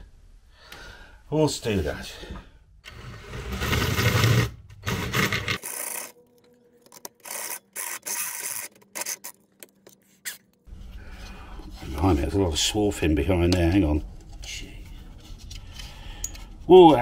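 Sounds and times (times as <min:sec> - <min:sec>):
cordless drill cutting metal: 0:04.9 - 0:06.2, 0:07.2 - 0:09.3.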